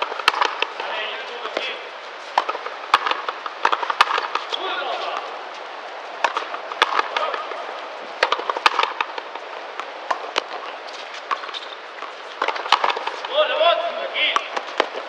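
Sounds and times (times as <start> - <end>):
ball slapping wall: 0.0 - 0.8, 2.4 - 5.3, 6.2 - 7.6
racket striking rubber ball: 0.0 - 0.9, 2.3 - 5.3, 6.2 - 13.4, 14.3 - 15.0.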